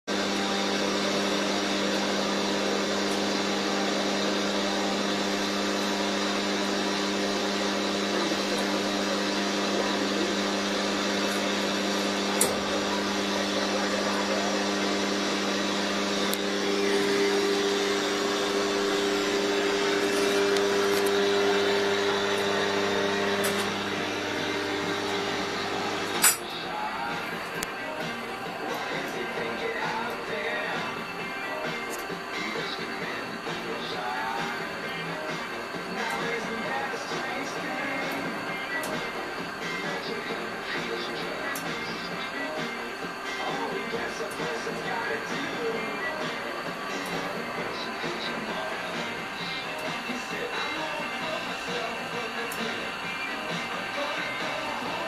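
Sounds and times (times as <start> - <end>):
electric motor humming: 0.1 - 55.0.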